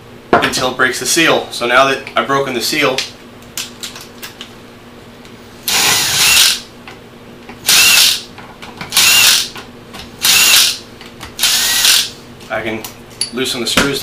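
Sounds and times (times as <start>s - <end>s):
impact driver whirring: 5.7s - 6.6s, 7.6s - 8.2s, 8.9s - 9.5s, 10.2s - 10.8s, 11.4s - 12.1s.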